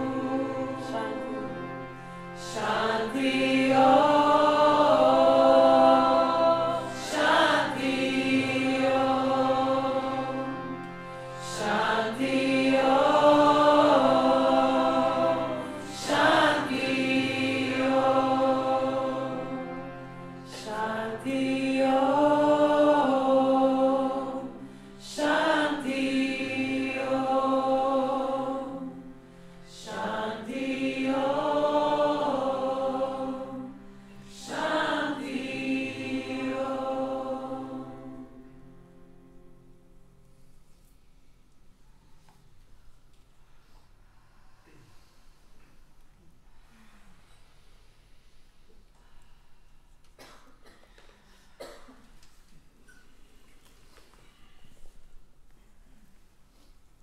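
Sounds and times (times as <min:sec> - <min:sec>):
harmonium drone: 0:00.0 - 0:40.2
women chanting: 0:02.4 - 0:10.4, 0:11.4 - 0:19.5, 0:20.5 - 0:29.0, 0:29.7 - 0:38.1.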